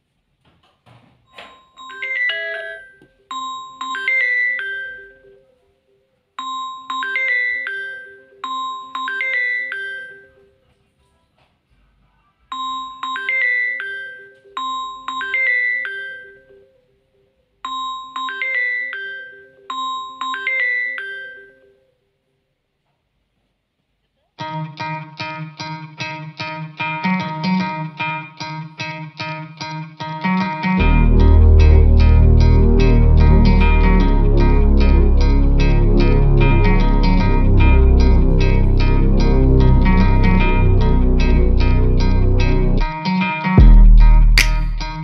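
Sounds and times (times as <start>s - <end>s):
marimba-like phone ringtone: 1.5s - 5.5s, 6.4s - 10.5s, 12.5s - 16.7s, 17.7s - 21.8s.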